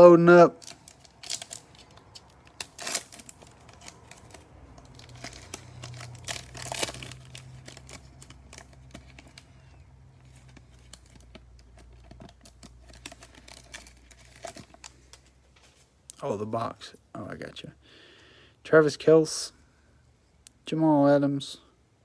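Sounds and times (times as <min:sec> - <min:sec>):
foil wrapper crinkling and tearing: 0:00.5 - 0:15.3.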